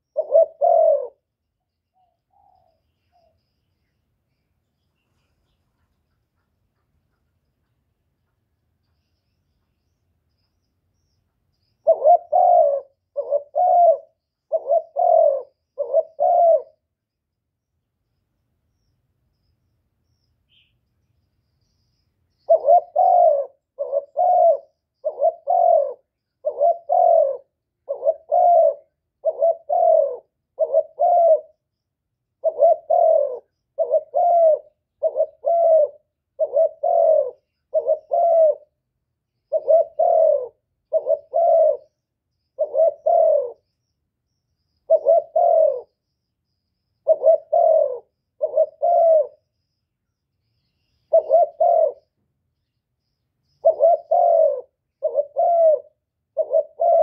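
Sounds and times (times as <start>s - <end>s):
dove cooing: 0.0s - 1.4s, 11.8s - 16.9s, 22.4s - 31.6s, 32.4s - 38.8s, 39.5s - 42.0s, 42.6s - 43.6s, 44.8s - 46.0s, 47.0s - 49.4s, 51.0s - 52.2s, 53.6s - 57.0s.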